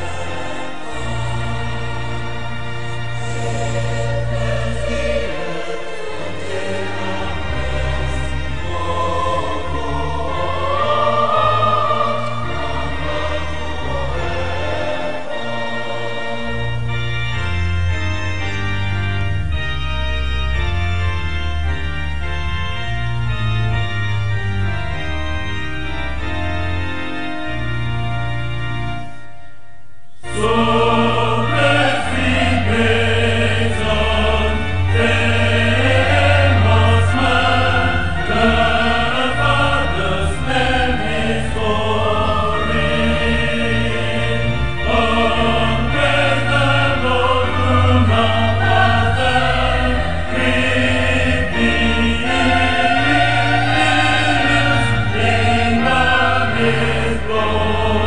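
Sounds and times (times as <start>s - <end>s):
choir singing: 0.0s - 17.0s, 30.2s - 58.0s
low held accompaniment notes: 0.0s - 58.0s.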